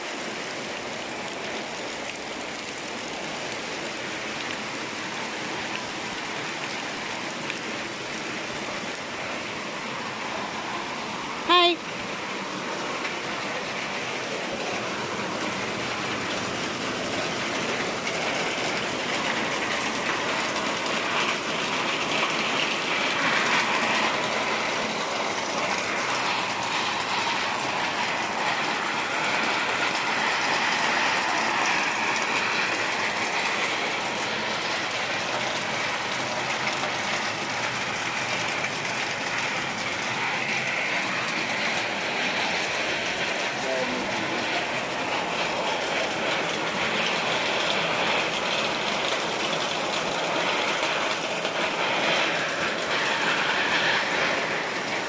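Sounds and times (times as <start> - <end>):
heavy rain falling: 0.0 - 55.0
water streaming off roof: 0.0 - 55.0.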